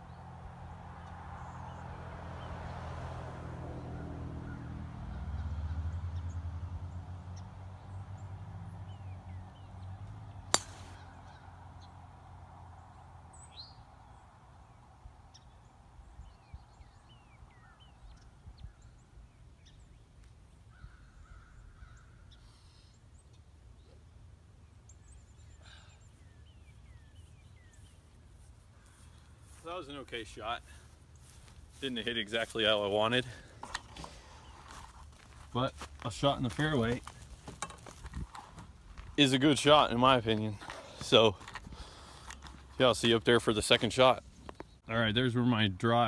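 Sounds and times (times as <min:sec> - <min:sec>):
bird calls: 0:07.3 - 0:45.0
golf club striking ball: 0:10.5 - 0:11.1.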